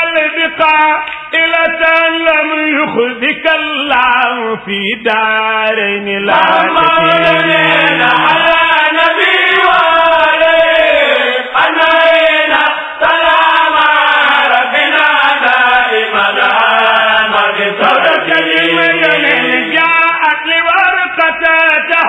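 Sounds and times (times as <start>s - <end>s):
man chanting devotional poem: 0.0s - 8.7s, 17.8s - 22.0s.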